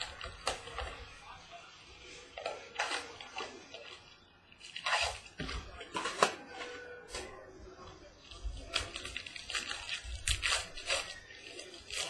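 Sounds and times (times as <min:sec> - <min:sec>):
foil wrapper crinkling and tearing: 0:00.0 - 0:01.2, 0:02.3 - 0:07.4, 0:08.2 - 0:12.0.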